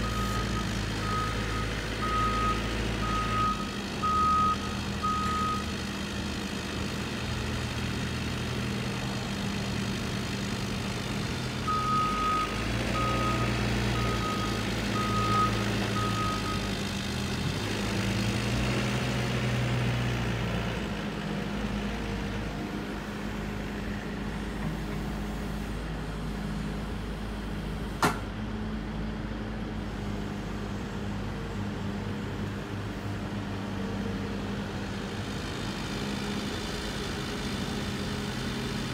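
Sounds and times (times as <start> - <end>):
travel alarm beeps: 0.0 - 5.7, 11.7 - 13.4
excavator diesel engine running: 0.0 - 38.9.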